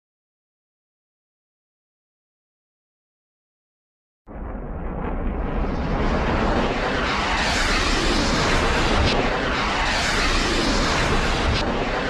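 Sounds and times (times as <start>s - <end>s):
cartoon explosion rumble: 4.3s - 12.0s.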